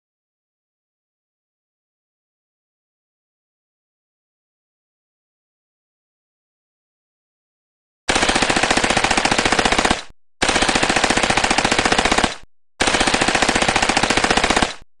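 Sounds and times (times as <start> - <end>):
submachine gun automatic fire: 8.1 - 14.9.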